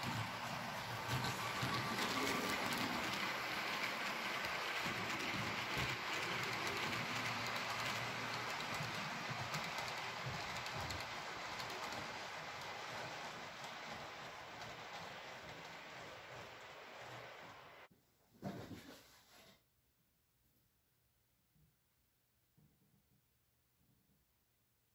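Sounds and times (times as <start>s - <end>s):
model train rolling and motor hum: 0.0s - 17.9s
wheels clicking on rails: 0.0s - 17.9s.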